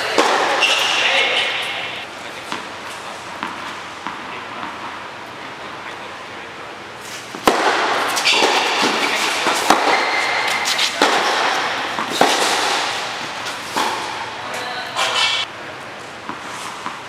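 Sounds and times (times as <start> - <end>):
racket hitting tennis ball: 0.0 - 5.0, 7.1 - 14.6, 16.2 - 17.0.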